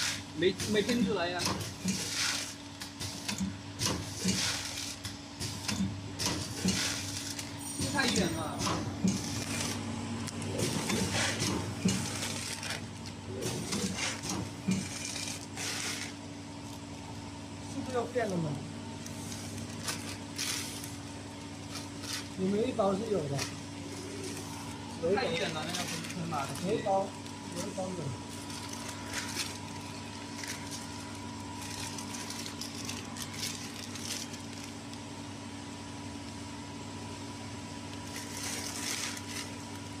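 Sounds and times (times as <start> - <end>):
steady low hum: 0.0 - 40.0
plastic chip bag crinkling: 19.3 - 35.1, 37.9 - 39.9.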